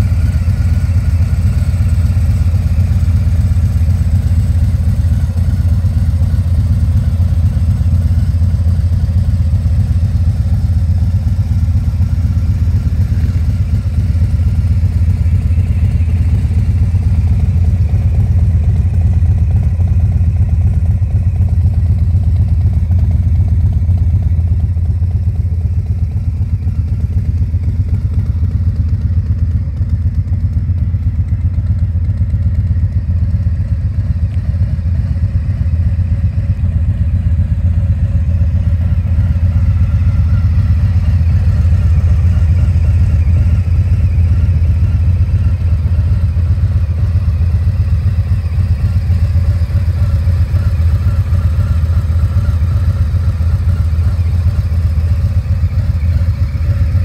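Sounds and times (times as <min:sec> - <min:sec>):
motorcycle engine idling: 0:00.0 - 0:57.0.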